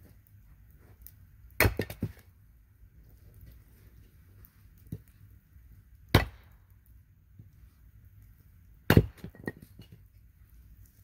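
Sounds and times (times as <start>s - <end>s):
faint fire crackles: 0.0s - 11.0s
loud sharp fire pops: 1.5s - 2.2s, 6.1s - 6.7s.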